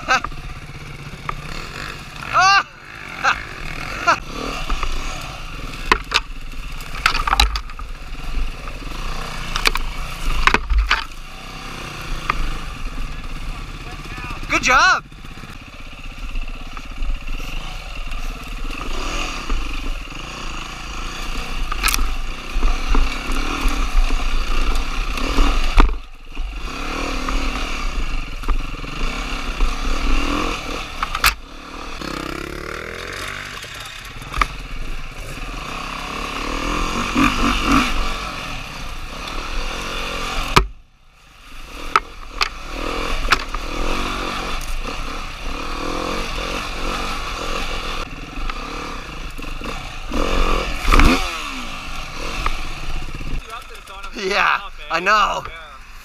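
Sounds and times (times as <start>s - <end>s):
dirt bike engine revving: 0.0s - 56.0s.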